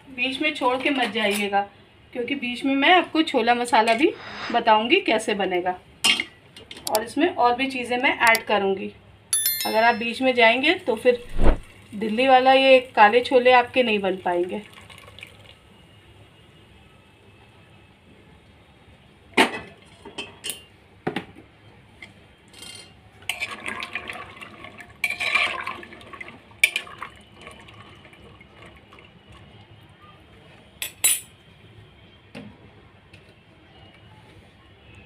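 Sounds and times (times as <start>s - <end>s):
metal clinks against a pot: 9.4s - 10.3s, 30.8s - 31.3s
water pouring and sloshing: 14.6s - 15.6s, 23.3s - 29.6s.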